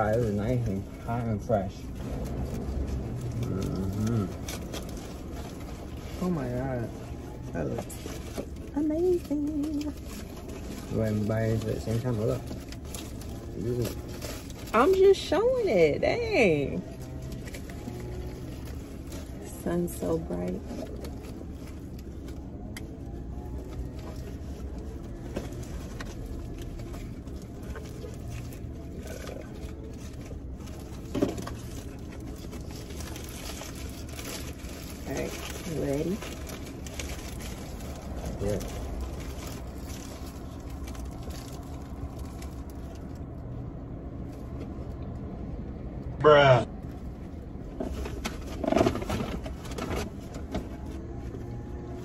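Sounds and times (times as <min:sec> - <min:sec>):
foil wrappers crinkling: 0:00.0 - 0:43.5
low hum in car cabin: 0:00.0 - 0:52.0
person chewing: 0:02.1 - 0:05.7.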